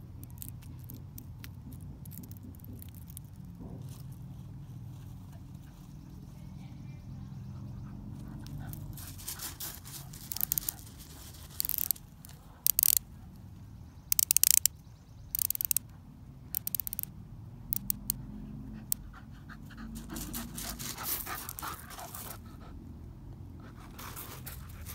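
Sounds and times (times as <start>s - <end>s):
watch bezel ratcheting clicks: 10.3s - 10.8s, 11.6s - 13.0s, 14.1s - 14.7s, 15.3s - 15.8s, 16.5s - 17.1s, 17.7s - 18.2s
dog panting: 18.7s - 22.8s.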